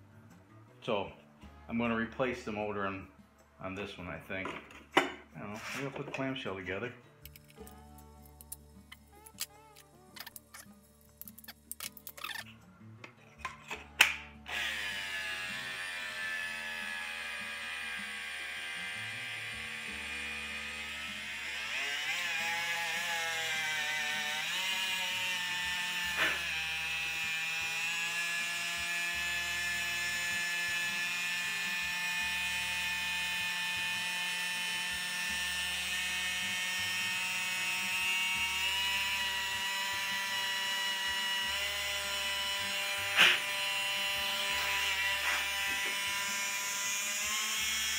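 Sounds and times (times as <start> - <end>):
cordless drill motor whining: 14.5 - 47.9.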